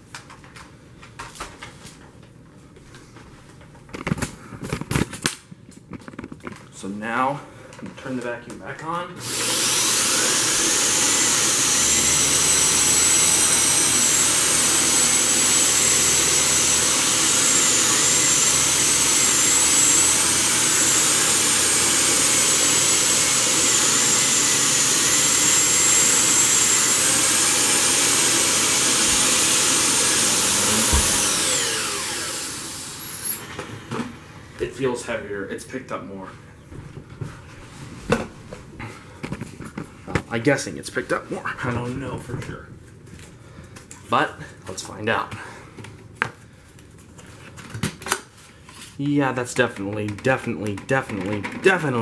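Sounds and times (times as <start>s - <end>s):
vacuum cleaner motor whine: 9.2s - 34.6s.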